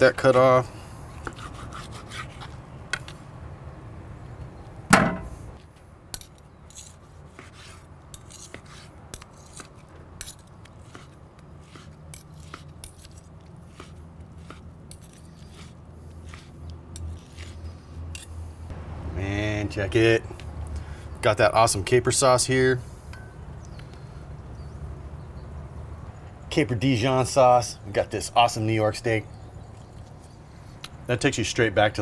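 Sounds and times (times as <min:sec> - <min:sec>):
knife slicing steak on board: 0:16.3 - 0:16.5.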